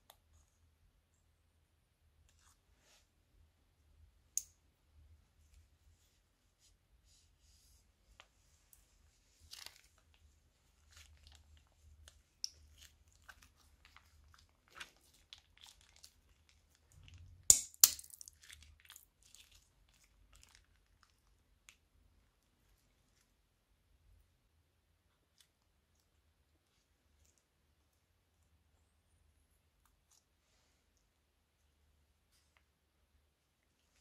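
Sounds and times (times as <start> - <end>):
slime squishing: 8.2 - 17.4, 18.1 - 21.9
piping bag crinkling: 9.2 - 17.2.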